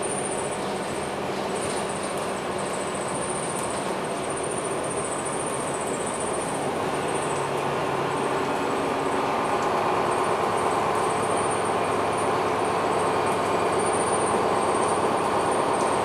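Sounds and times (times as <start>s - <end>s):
bus diesel engine running: 3.8s - 16.0s.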